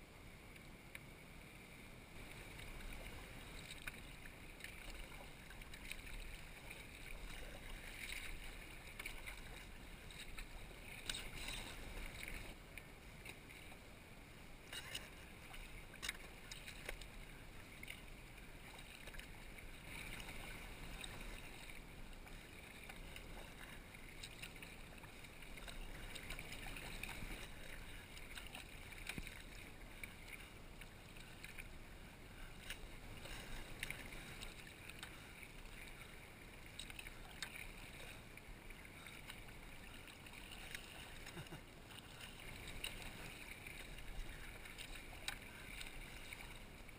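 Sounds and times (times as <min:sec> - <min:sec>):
water lapping against kayak: 0:00.0 - 0:46.9.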